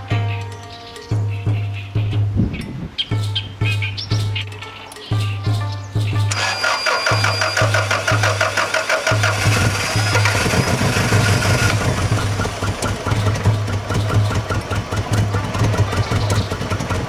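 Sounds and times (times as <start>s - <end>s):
car engine cranking and idling: 6.2s - 17.0s
light regular engine tick: 9.1s - 17.0s.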